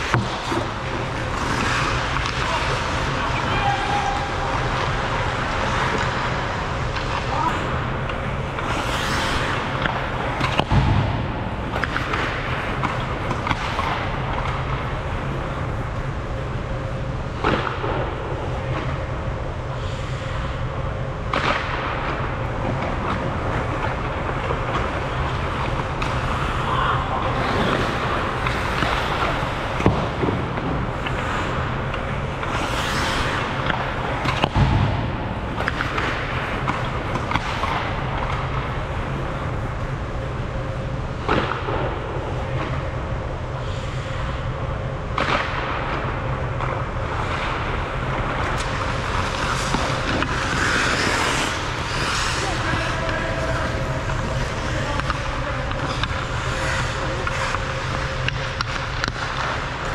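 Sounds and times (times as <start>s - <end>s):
hockey sticks and puck clacking: 0.0s - 16.7s, 17.3s - 19.2s, 21.3s - 42.9s, 45.1s - 59.9s
skates scraping ice: 0.0s - 19.2s, 21.2s - 42.9s, 43.6s - 44.4s, 45.1s - 59.9s
steady low hum: 0.0s - 59.9s.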